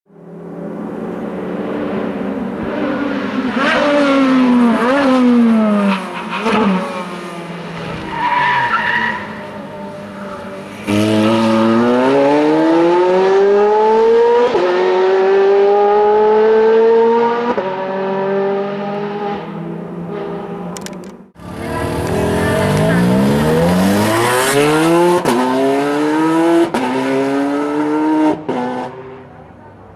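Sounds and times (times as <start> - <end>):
sports car engine revving: 21.4 - 29.0.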